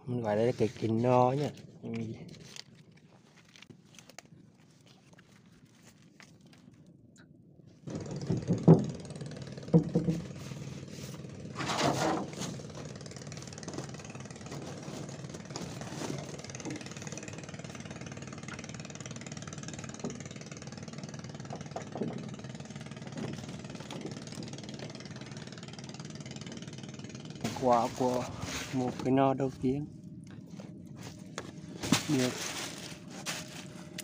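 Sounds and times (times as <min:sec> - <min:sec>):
small engine running: 0:07.8 - 0:34.0
loud knocks and clatter: 0:07.9 - 0:10.4, 0:21.1 - 0:25.2.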